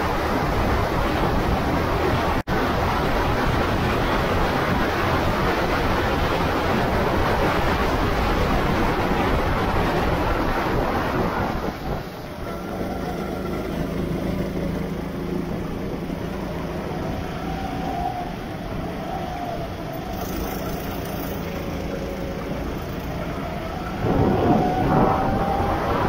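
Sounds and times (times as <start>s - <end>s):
go-kart engine running: 0.0s - 26.0s
hiss of wind and water spray: 0.0s - 26.0s.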